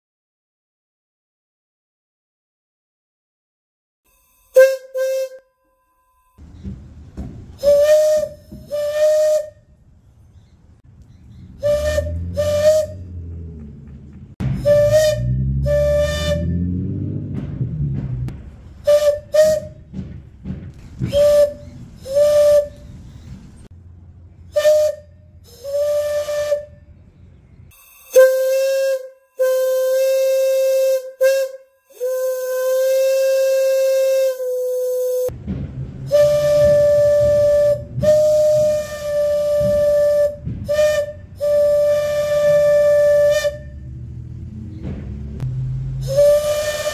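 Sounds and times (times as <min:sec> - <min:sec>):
steam whistle blowing: 0:04.1 - 0:06.4, 0:07.6 - 0:09.7, 0:11.6 - 0:13.3, 0:14.5 - 0:16.9, 0:18.8 - 0:19.9, 0:21.1 - 0:23.2, 0:24.5 - 0:27.0, 0:27.7 - 0:35.3, 0:36.1 - 0:44.0, 0:45.9 - 0:46.9.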